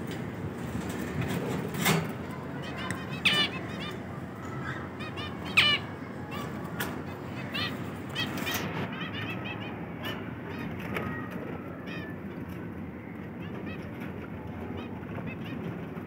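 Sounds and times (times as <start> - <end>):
low background noise: 0.0 - 16.0
finches chirping: 2.3 - 10.7.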